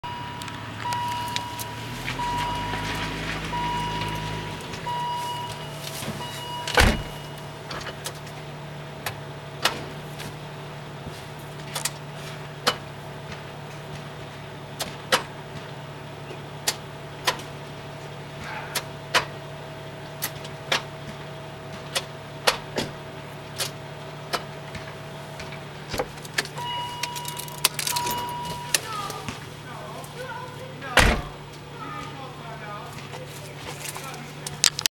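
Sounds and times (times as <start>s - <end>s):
gear lever clicks and clunks: 3.8s - 8.3s, 23.6s - 28.9s, 31.0s - 31.6s
heavy thump: 4.7s - 7.3s, 31.0s - 31.4s.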